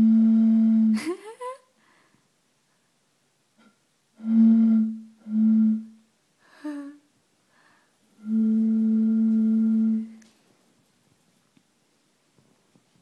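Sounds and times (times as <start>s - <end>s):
low hoots blown across a bottle: 0.0s - 1.0s, 3.6s - 6.1s, 8.1s - 10.2s.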